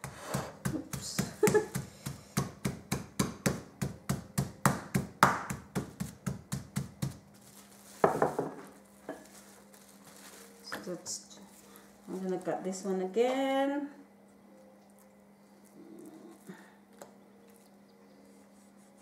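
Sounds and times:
rolling pin pounding meat: 0.0 - 7.3
plastic wrap crinkling: 6.0 - 12.9.

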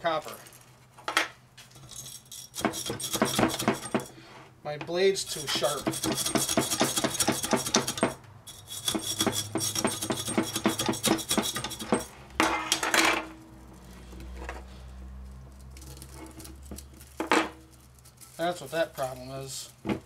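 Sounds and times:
handling copper wire: 0.0 - 20.0
hacksaw cutting metal: 1.8 - 4.1, 5.2 - 12.9.

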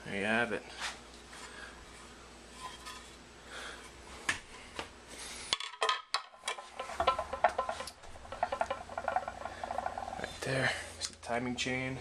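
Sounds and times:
light metal clinks and knocks: 5.8 - 10.4.

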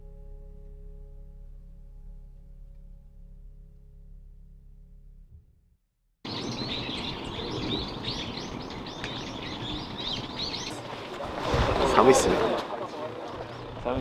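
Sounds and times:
low music tones: 0.0 - 5.5
small birds chirping: 6.3 - 11.2
steady outdoor hiss: 6.3 - 14.0.

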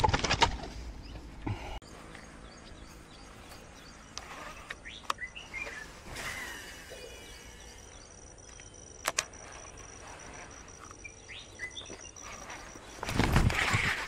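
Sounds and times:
bird chirps: 1.0 - 13.1
sharp clicks: 4.1 - 5.3, 8.4 - 11.0
thin steady high tone: 5.2 - 13.1.

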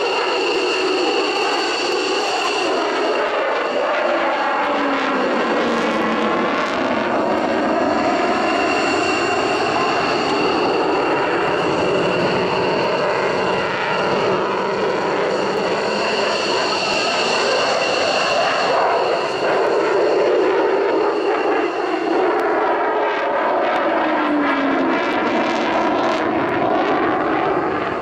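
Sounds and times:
jet engine roaring overhead: 0.0 - 28.0.

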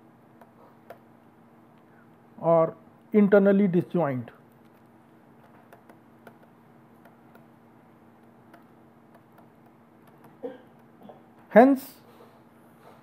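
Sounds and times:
low steady hum: 0.0 - 13.0
stylus tapping on tablet: 5.4 - 7.6, 8.2 - 11.0.

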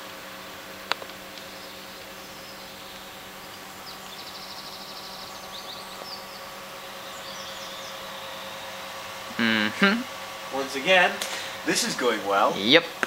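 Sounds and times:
low hum and hiss: 0.0 - 13.0
faint high chirps: 1.5 - 8.7.

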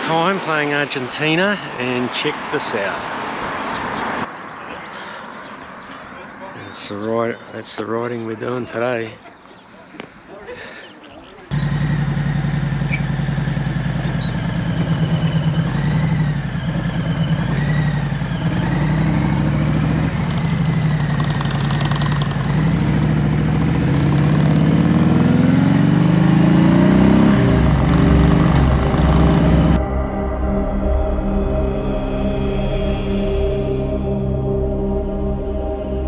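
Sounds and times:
motorcycle engine running: 11.5 - 29.8.

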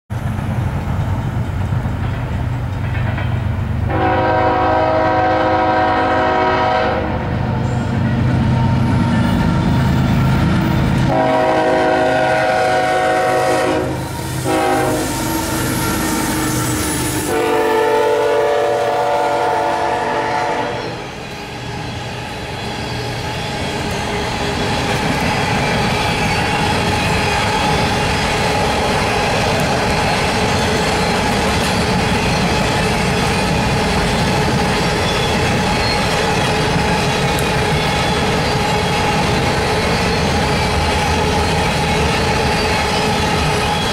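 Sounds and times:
train wheels clattering on rails: 0.1 - 43.9
locomotive air horn blasts: 3.9 - 7.3, 11.0 - 21.0.

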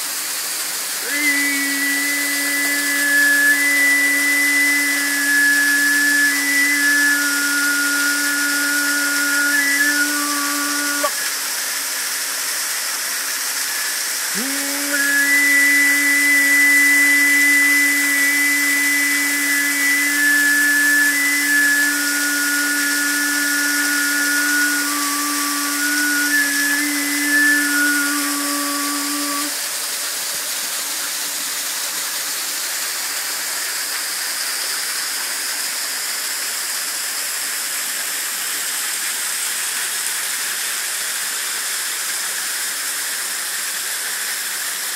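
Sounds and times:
waterfall splashing onto rocks: 0.0 - 9.6, 10.2 - 44.9
high held notes: 1.0 - 11.2, 14.3 - 29.7
low drone: 1.0 - 11.3, 14.3 - 29.7.

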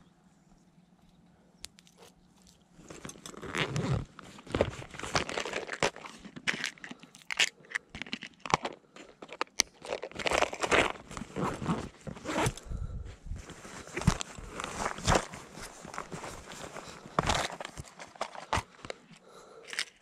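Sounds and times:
plastic crackling rustles: 2.8 - 12.6, 13.4 - 19.1.

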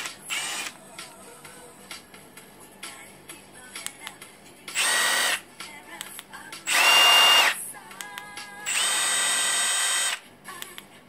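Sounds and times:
impact wrench motor whining: 0.0 - 0.8, 4.7 - 5.4, 6.7 - 7.6, 8.6 - 10.2.

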